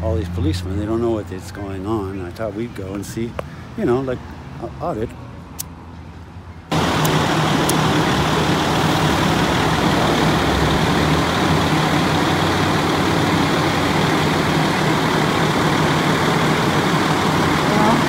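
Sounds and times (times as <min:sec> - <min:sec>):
diesel engine idling: 0:06.7 - 0:18.0.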